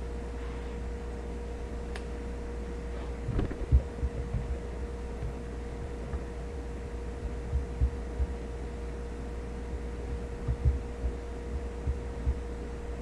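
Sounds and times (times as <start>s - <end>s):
steady hum with thin tone: 0.0s - 13.0s
soft low thumps: 3.2s - 8.4s, 9.6s - 12.5s.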